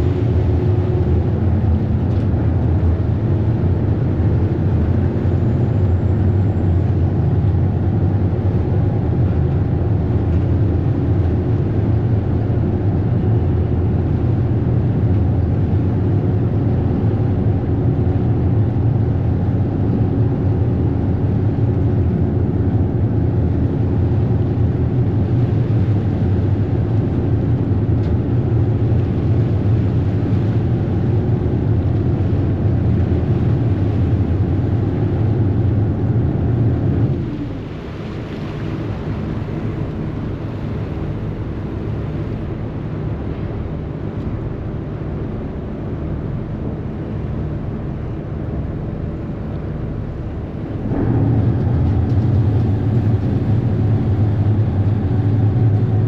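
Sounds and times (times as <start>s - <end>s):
ferry engine drone: 0.0s - 56.0s
water rushing in wake: 0.0s - 56.0s.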